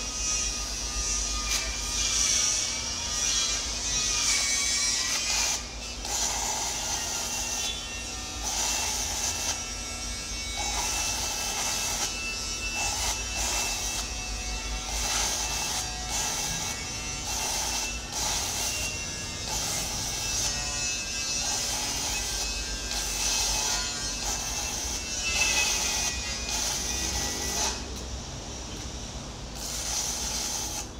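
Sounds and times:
arc welding crackling buzz: 0.0s - 30.9s.

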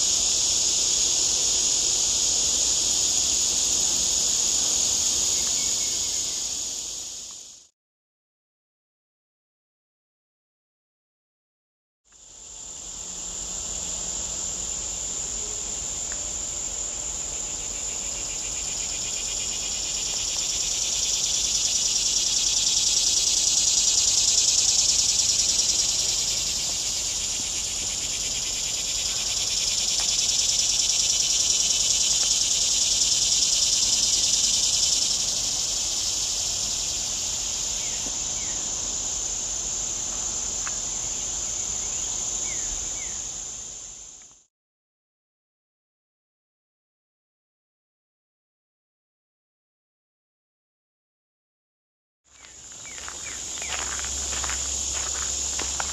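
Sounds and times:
insects buzzing chorus: 0.0s - 7.7s, 12.1s - 44.4s, 52.3s - 55.9s.

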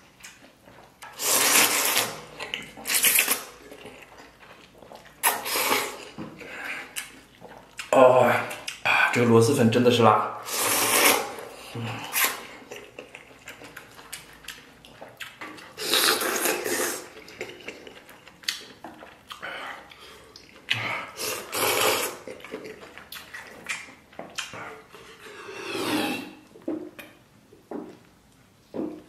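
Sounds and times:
chewing: 0.1s - 8.9s, 11.0s - 27.2s
person slurping noodles: 1.0s - 3.5s, 5.2s - 7.2s, 10.4s - 13.0s, 15.7s - 17.7s, 19.6s - 22.6s, 24.4s - 26.4s.

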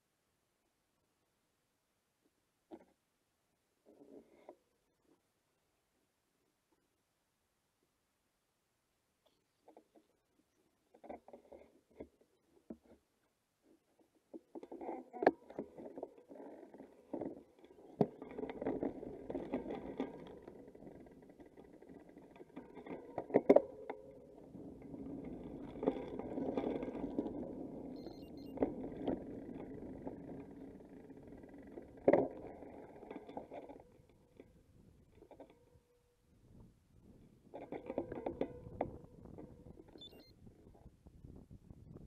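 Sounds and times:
bicycle rumbling: 14.0s - 42.0s.

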